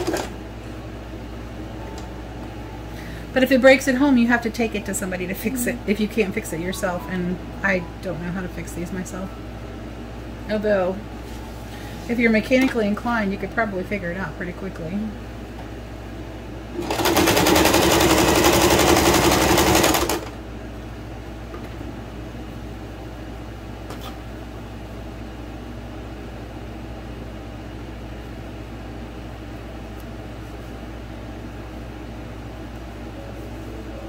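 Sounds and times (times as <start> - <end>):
electric sewing machine stitching: 0.0 - 0.4, 16.8 - 20.3.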